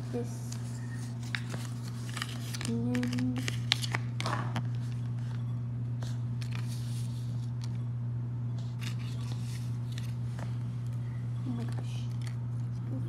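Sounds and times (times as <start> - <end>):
paper rustling and crinkling: 0.4 - 5.4, 6.0 - 7.8, 8.6 - 10.6.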